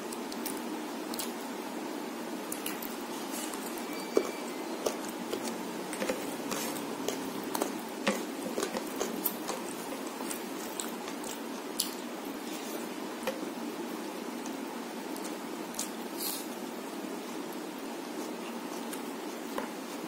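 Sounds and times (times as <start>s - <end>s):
chewing: 0.1s - 1.4s, 2.5s - 13.4s
wet squishes of food: 2.5s - 13.5s.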